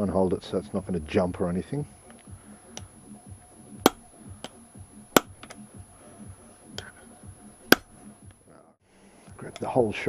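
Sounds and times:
hammer striking metal tool: 3.8s - 4.1s, 5.1s - 5.6s, 7.7s - 8.0s
light hammer taps: 3.8s - 4.6s, 5.2s - 5.6s, 7.7s - 8.0s.

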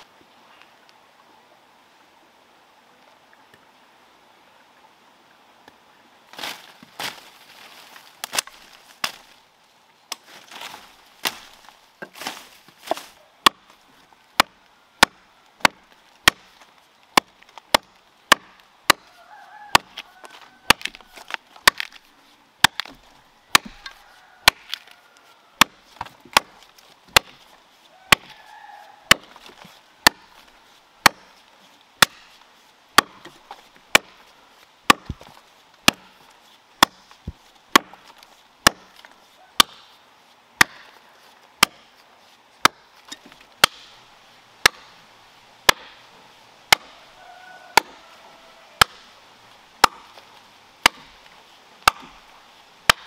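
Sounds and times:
blade chopping tree trunk: 10.1s - 20.0s, 20.7s - 24.9s, 25.6s - 27.5s, 28.1s - 28.4s, 29.0s - 34.2s, 34.8s - 36.2s, 36.8s - 40.0s, 40.6s - 41.0s, 41.6s - 41.9s, 42.6s - 44.0s, 44.6s - 45.0s, 45.6s - 46.0s, 46.7s - 47.0s, 47.7s - 48.0s, 48.8s - 49.2s, 49.8s - 53.0s.

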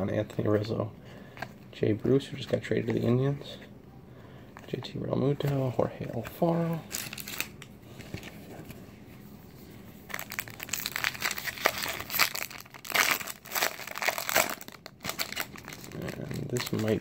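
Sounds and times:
foil wrapper crinkling: 6.9s - 7.6s, 10.1s - 17.0s.

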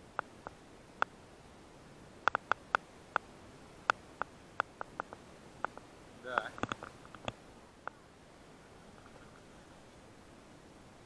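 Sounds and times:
faint background hiss: 0.0s - 11.0s
sharp short clicks: 2.2s - 3.3s, 3.9s - 7.4s.

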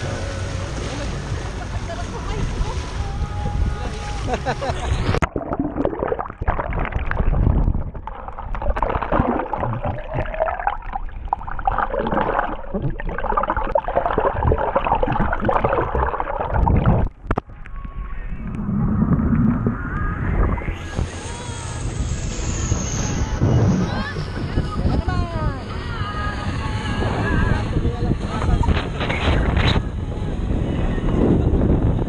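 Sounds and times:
seawater churning underwater: 2.4s - 25.0s.

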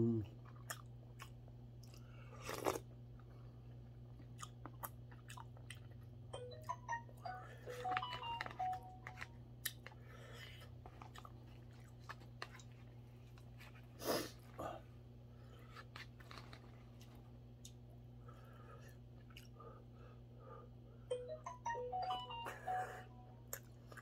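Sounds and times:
person slurping and chewing: 0.6s - 2.9s.

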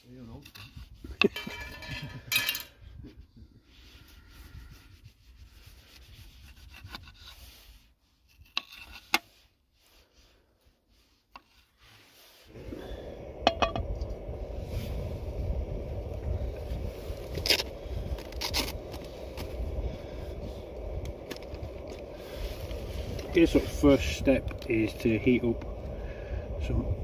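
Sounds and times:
camp stove burner rushing: 0.1s - 3.0s, 11.7s - 27.0s.

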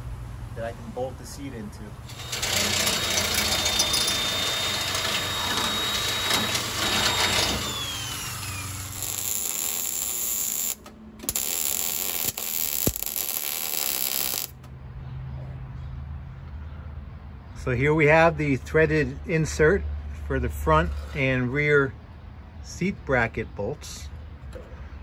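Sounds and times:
electric drill boring into steel: 2.1s - 14.5s
welder arc crackling and hissing: 2.1s - 14.6s.

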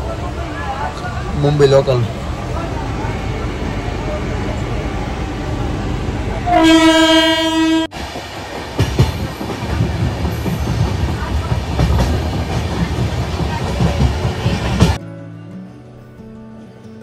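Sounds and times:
train rumble: 0.0s - 15.0s
train horn: 6.4s - 7.9s
wheels clacking over rail joints: 8.1s - 15.0s.

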